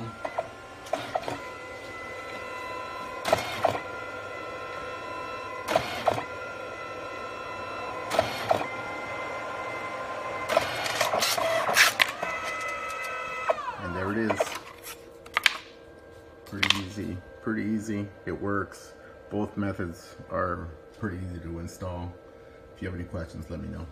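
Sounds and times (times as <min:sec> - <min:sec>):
printer mechanism clunks: 0:00.0 - 0:08.9, 0:10.3 - 0:15.7, 0:16.5 - 0:17.2
printer motor whine: 0:00.0 - 0:23.9.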